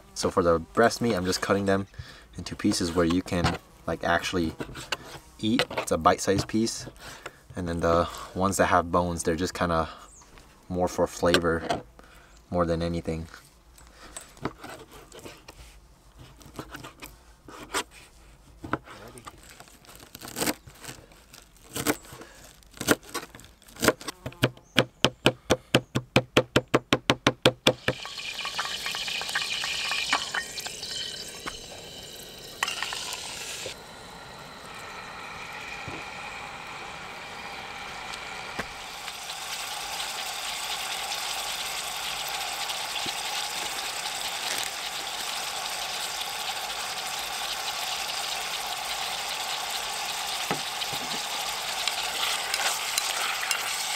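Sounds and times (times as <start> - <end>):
meat sizzling in oil: 27.8 - 53.9.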